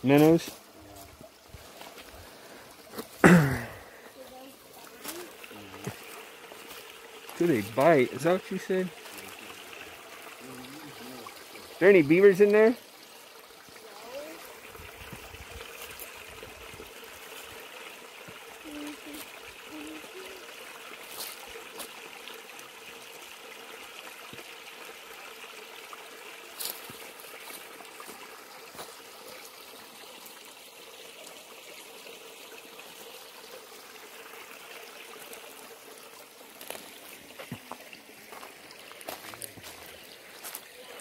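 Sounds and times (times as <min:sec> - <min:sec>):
creek trickling over rocks: 0:00.0 - 0:41.0.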